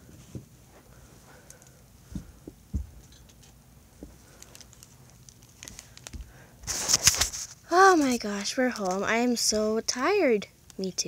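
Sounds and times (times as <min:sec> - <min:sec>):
soft handling thumps: 0:00.0 - 0:01.4, 0:02.0 - 0:03.3, 0:04.0 - 0:04.3.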